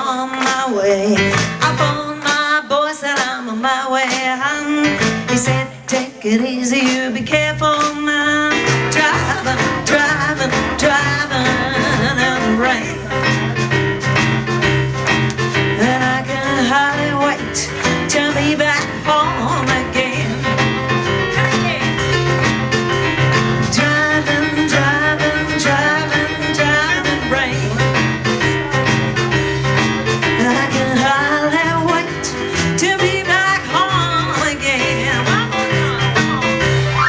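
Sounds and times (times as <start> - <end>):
woman singing with vibrato: 0.0 - 13.2, 15.7 - 20.6, 23.6 - 28.0, 30.2 - 36.6
drum kit: 0.0 - 37.0
stage piano: 0.0 - 37.0
double bass walking line: 7.2 - 37.0.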